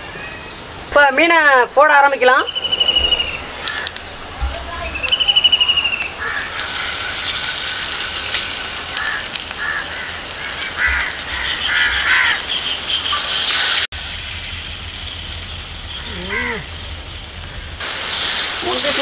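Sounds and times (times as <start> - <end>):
birds calling: 0.0 - 13.9, 14.6 - 18.0
fish sizzling in oil: 6.2 - 19.0.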